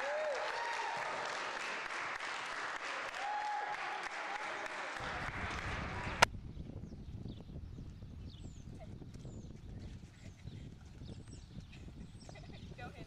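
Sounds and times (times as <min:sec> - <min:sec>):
crowd clapping and cheering: 0:00.0 - 0:06.3.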